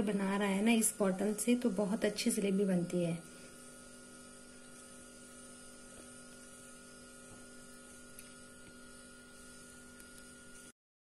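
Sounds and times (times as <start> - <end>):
faint electrical hum: 0.0 - 10.8.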